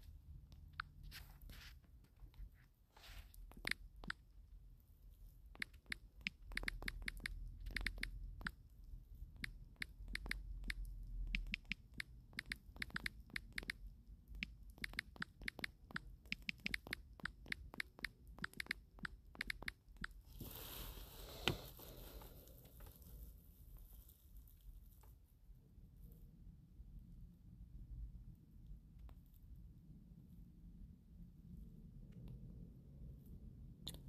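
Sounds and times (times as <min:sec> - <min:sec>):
fingertip taps on touchscreen: 0:09.4 - 0:13.8.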